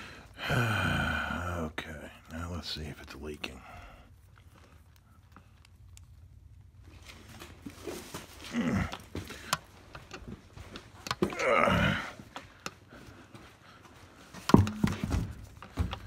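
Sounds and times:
faint knocks and clicks: 14.4s - 16.0s.

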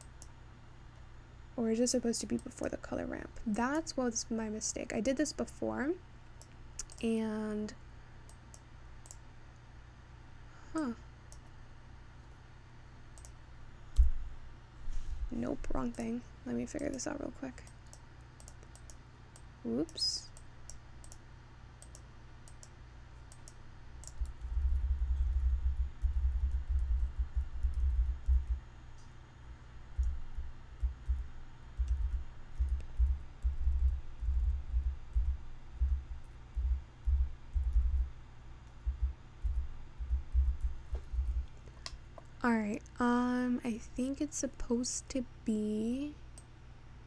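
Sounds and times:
computer mouse clicks: 0.0s - 0.4s, 6.4s - 7.1s, 8.2s - 9.2s, 13.1s - 13.4s, 16.7s - 21.2s, 21.8s - 24.8s
low rumble bumps: 24.2s - 28.6s, 30.0s - 38.2s, 38.9s - 41.5s.

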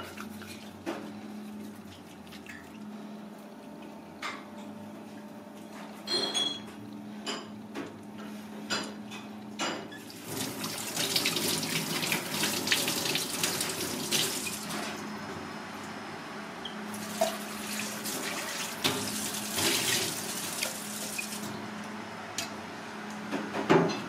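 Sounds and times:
tap water running into sink: 10.1s - 14.7s, 17.0s - 21.5s.

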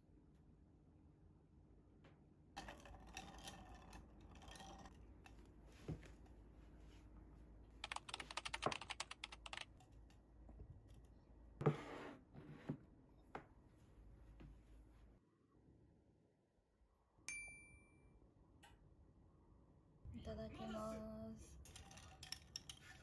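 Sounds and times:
metal straws stirring ice: 2.6s - 5.4s, 21.6s - 23.0s.

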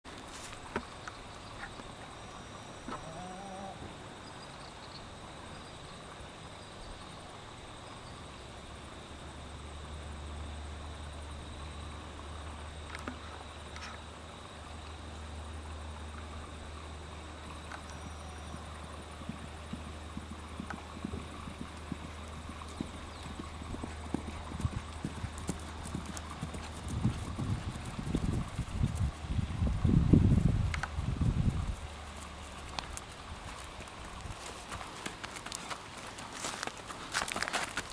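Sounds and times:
faint insect chirring: 0.1s - 37.9s
outdoor background hiss: 0.1s - 37.9s
faint high ticks: 17.4s - 27.3s, 30.6s - 31.0s, 31.8s - 37.9s
pony hoofbeats on grass: 17.5s - 37.9s.

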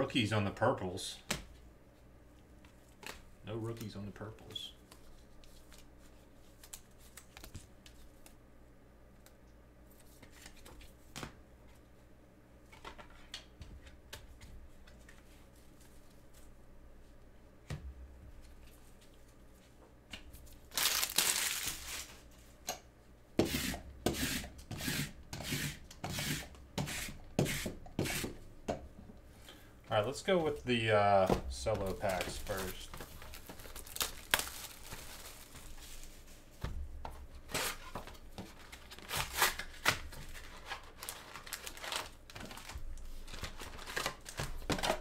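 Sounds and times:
card handling rustles and clicks: 2.6s - 8.4s, 30.3s - 36.4s, 37.1s - 45.0s
packaging tearing and crinkling: 20.6s - 22.2s, 31.9s - 36.1s, 37.5s - 45.0s.

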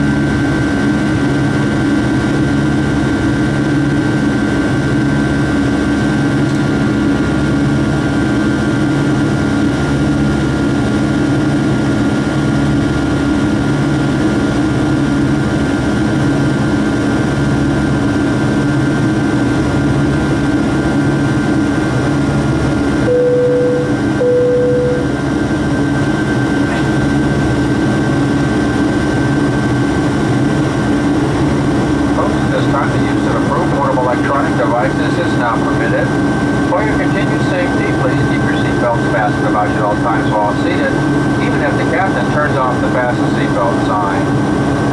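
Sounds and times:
jet engine drone in cabin: 0.0s - 44.9s
thin high whine: 23.0s - 25.2s.

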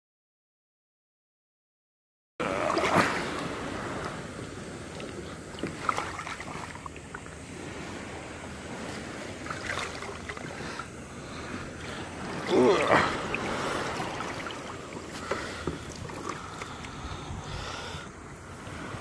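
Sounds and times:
lapping water: 2.4s - 7.3s, 8.9s - 18.2s
wind: 2.4s - 19.0s
water splashing off fish: 9.4s - 10.8s, 11.9s - 17.0s.

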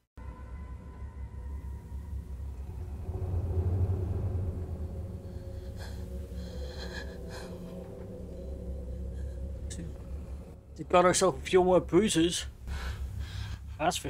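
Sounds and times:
low steady rumble: 0.8s - 14.0s
woman breathing heavily and gasping: 4.7s - 10.6s.

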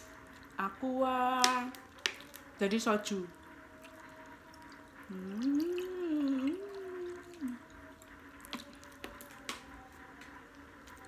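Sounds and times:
water pouring into mug: 3.2s - 9.4s
woman humming: 5.0s - 7.8s.

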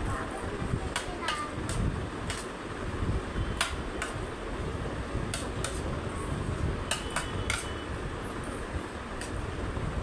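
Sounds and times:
steady low rumble: 0.0s - 7.0s.

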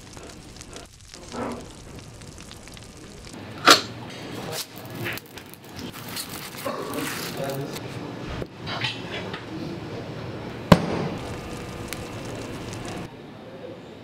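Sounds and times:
loud burst of flame: 0.0s - 7.7s, 10.7s - 13.1s
flames burning with rushing noise: 0.0s - 8.4s, 10.2s - 13.1s.

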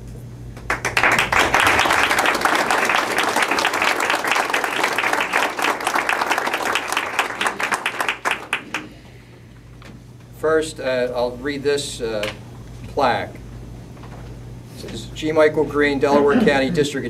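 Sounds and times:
small group applauding: 0.6s - 9.1s.

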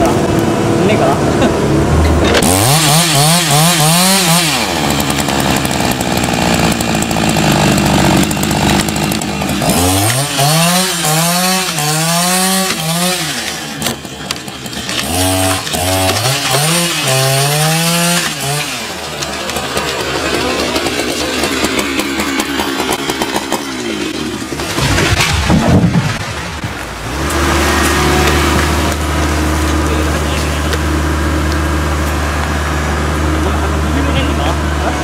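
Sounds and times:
chainsaw cutting and revving: 0.0s - 35.0s.

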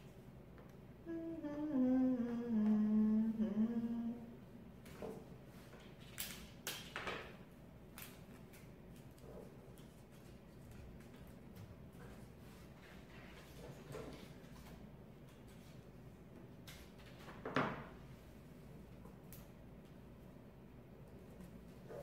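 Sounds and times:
woman humming: 1.0s - 4.4s.

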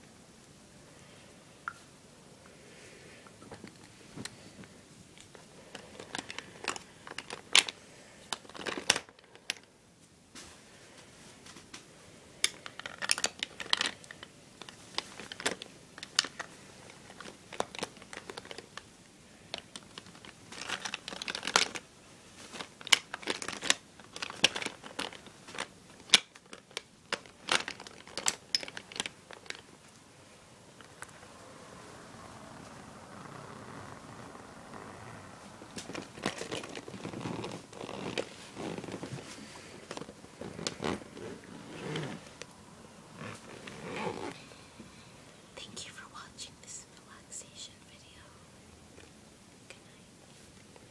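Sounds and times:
cosmetic bag crinkling: 5.3s - 9.6s, 12.4s - 18.8s, 19.4s - 29.9s, 34.6s - 42.4s
makeup items clicking together: 5.7s - 9.6s, 12.4s - 16.5s, 22.6s - 29.6s.

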